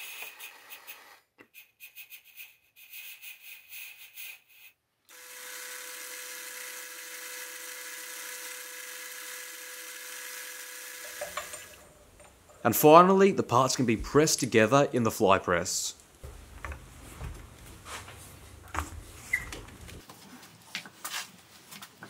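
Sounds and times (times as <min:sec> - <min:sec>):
lathe motor whirring: 0:05.1 - 0:11.9.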